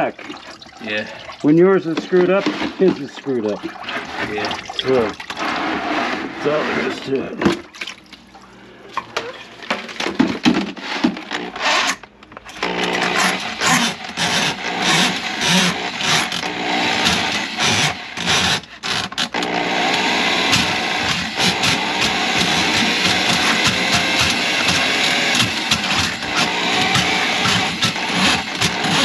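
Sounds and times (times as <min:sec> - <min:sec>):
drain auger motor running: 0:12.5 - 0:29.0.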